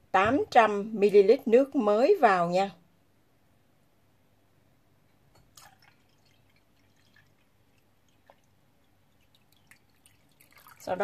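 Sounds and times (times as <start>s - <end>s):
water splashing into batter: 5.5s - 11.0s.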